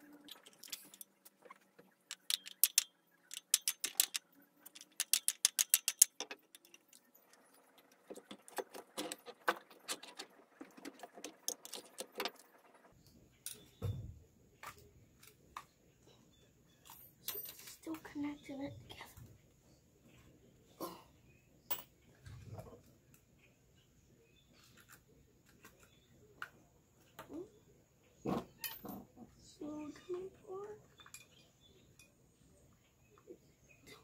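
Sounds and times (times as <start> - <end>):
metallic clicks of small parts: 0.0 - 12.6.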